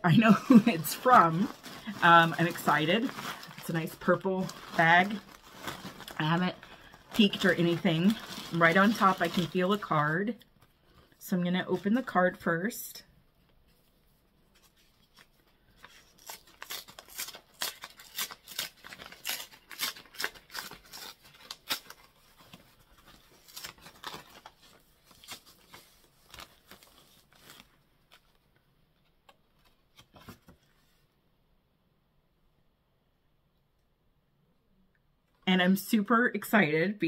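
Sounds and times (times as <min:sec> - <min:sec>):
paper envelope tearing: 0:00.5 - 0:09.9, 0:15.2 - 0:28.2.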